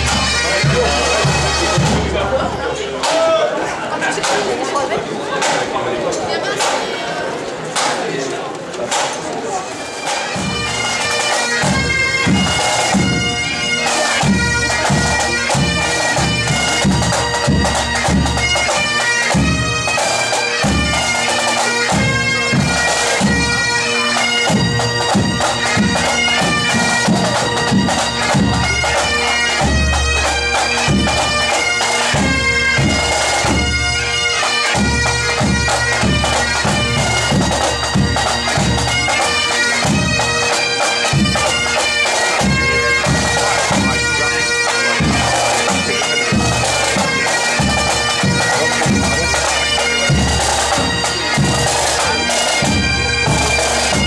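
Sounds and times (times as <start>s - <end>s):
bagpipes playing over drone: 0.0s - 2.4s, 9.8s - 54.0s
drums beating: 0.0s - 54.0s.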